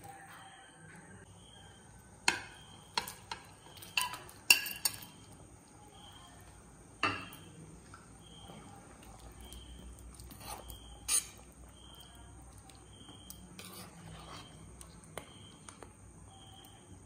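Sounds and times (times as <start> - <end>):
metal spoon clinking on plate and pan: 2.2 - 5.4, 7.0 - 7.6, 10.1 - 11.5.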